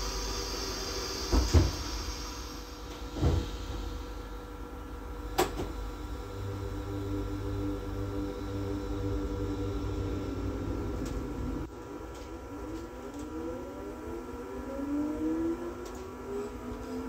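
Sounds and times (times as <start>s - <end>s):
traction motor whine: 0.0s - 4.2s, 4.9s - 17.0s
railcar running rumble: 1.6s - 11.7s.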